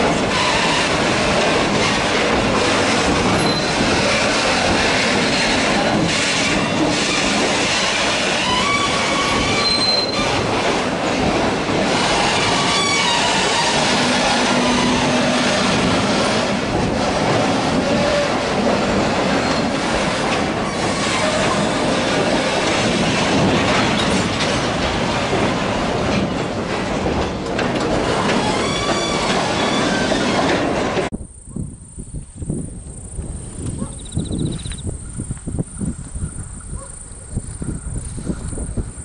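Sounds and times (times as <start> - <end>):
train wheels clattering over rail joints: 0.0 - 31.1
high-pitched wheel squeal: 3.4 - 3.9, 8.4 - 10.4, 12.5 - 15.7.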